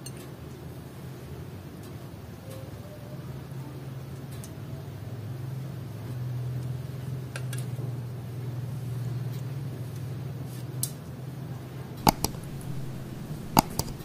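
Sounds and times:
steady low hum: 12.0s - 14.0s
spatula clicking on ceramic plate: 12.1s - 14.0s.

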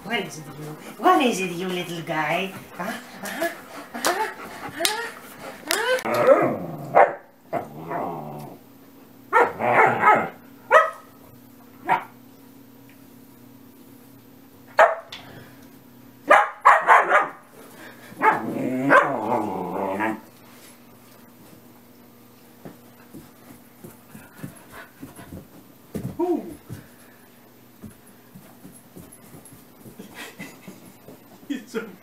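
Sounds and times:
puppy barking and growling: 2.8s - 8.6s, 9.3s - 11.0s, 16.3s - 17.5s, 18.2s - 20.2s.

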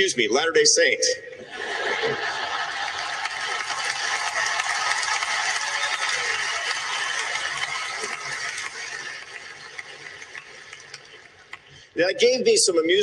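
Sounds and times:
audience laughing: 1.4s - 11.7s
audience clapping: 2.2s - 11.9s.

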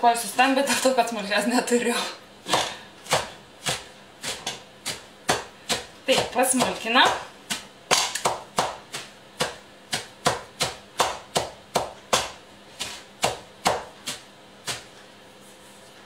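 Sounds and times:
knife chopping carrots: 2.5s - 15.0s.

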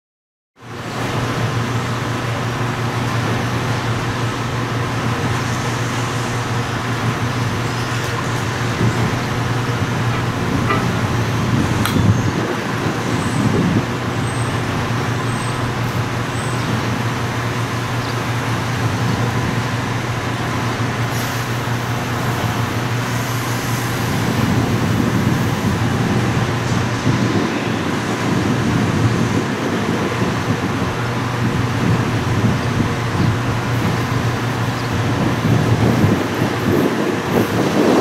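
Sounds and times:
traffic noise: 0.6s - 38.0s
constant low hum: 0.8s - 27.2s.

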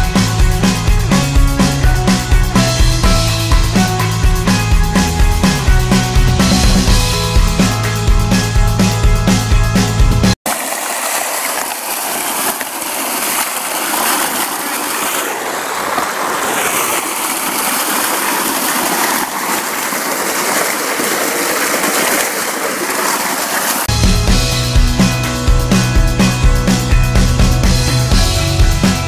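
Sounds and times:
music: 0.0s - 10.4s, 23.9s - 29.0s
water gushing onto rocks: 10.5s - 23.9s.

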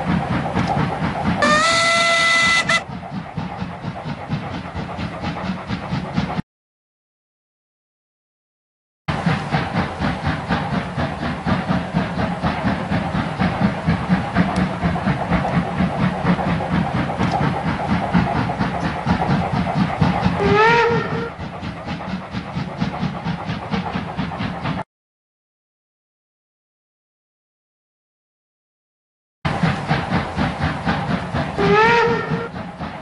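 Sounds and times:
steam locomotive chuffing: 0.0s - 6.4s, 9.1s - 24.9s, 29.5s - 33.0s
steam whistle blast: 1.4s - 2.8s, 20.4s - 21.3s, 31.6s - 32.5s
hissing steam: 9.1s - 24.8s, 29.5s - 33.0s.

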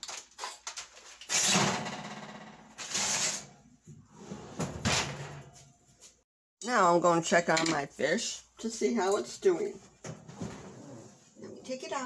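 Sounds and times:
oven door opening and shutting: 4.1s - 5.6s.

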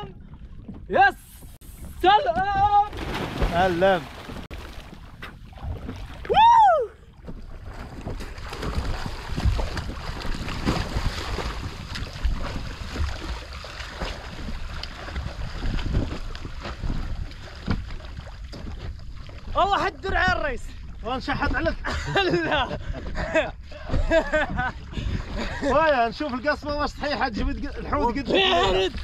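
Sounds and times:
water sloshing: 0.0s - 21.6s
wind buffeting microphone: 0.0s - 29.0s
man crying out: 6.3s - 7.0s.

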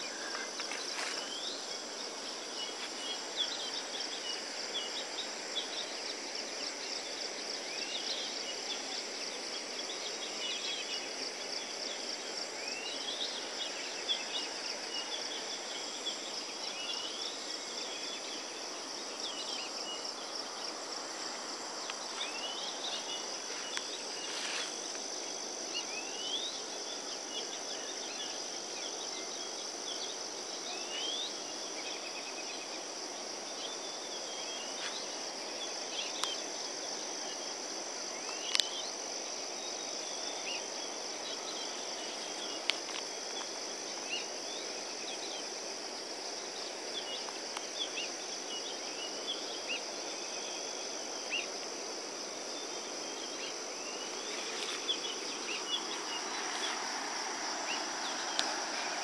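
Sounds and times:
shrill insect chorus: 0.0s - 59.0s
soft even hiss: 0.0s - 59.0s.

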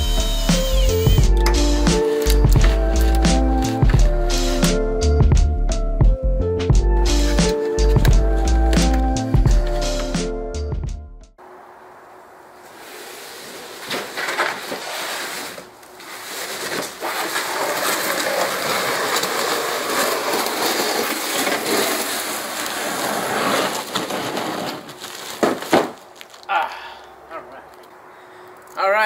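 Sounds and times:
packaging rustling and crinkling: 13.5s - 26.5s.

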